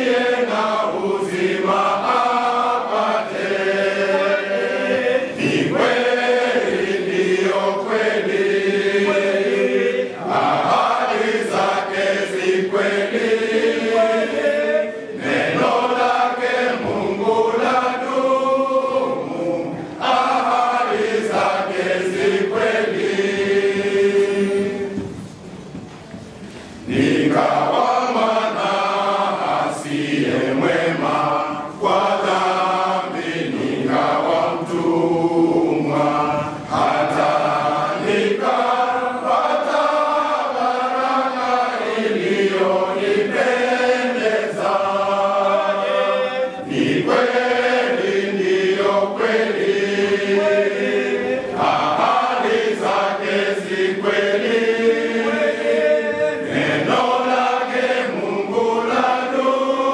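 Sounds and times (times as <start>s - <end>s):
men's choir singing a hymn: 0.0s - 25.4s, 26.5s - 59.9s.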